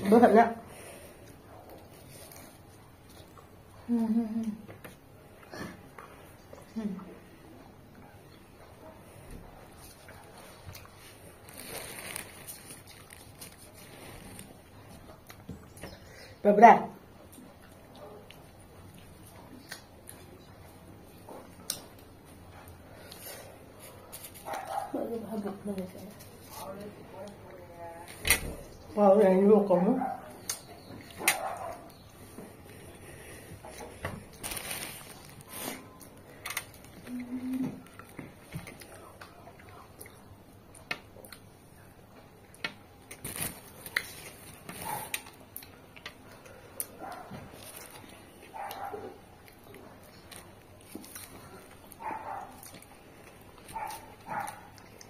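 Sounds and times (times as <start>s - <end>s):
squelchy chewing: 9.6s - 15.7s, 42.5s - 55.0s
chewing orange segments: 30.3s - 55.0s.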